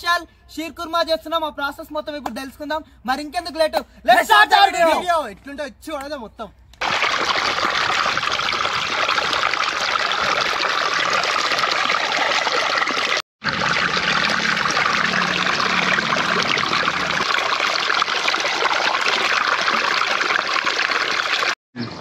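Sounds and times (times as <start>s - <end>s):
water trickling: 6.8s - 22.0s.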